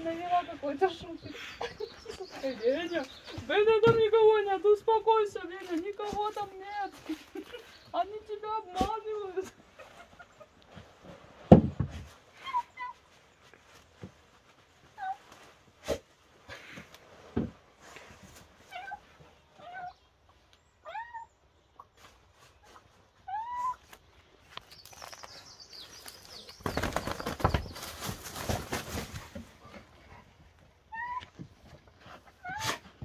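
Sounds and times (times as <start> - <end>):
rustling through leaves: 22.0 - 29.7.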